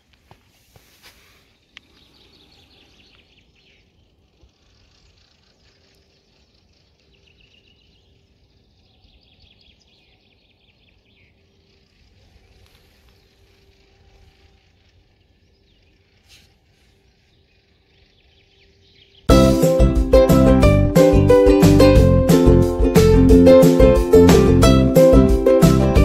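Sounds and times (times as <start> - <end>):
nightingale singing: 1.5 - 16.4, 17.0 - 22.0.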